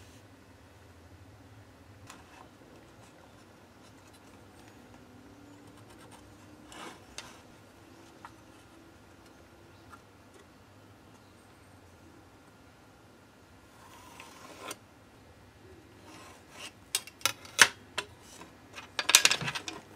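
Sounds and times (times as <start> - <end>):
tool scrape: 6.6 - 7.5, 13.8 - 14.8.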